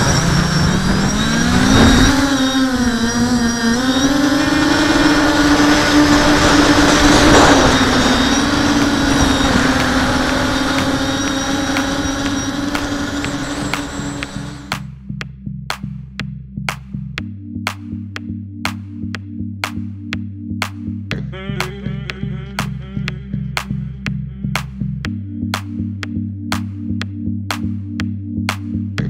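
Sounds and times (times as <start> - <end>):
drone buzzing: 0.0 - 15.2.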